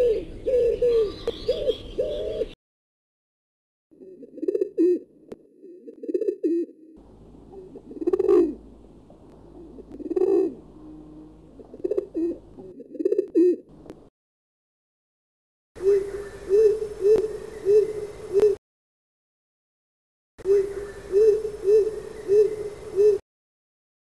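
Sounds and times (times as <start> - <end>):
dove cooing: 0.0 - 2.6, 4.0 - 6.9, 7.5 - 8.7, 9.4 - 13.7, 15.8 - 18.6, 20.4 - 23.2.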